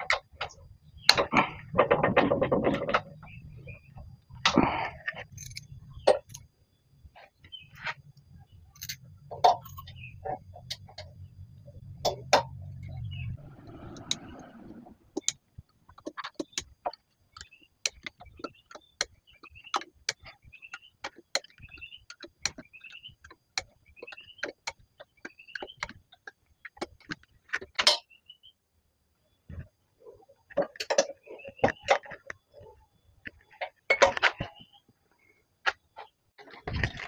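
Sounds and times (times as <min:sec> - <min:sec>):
low hum: 0:08.1 - 0:15.7.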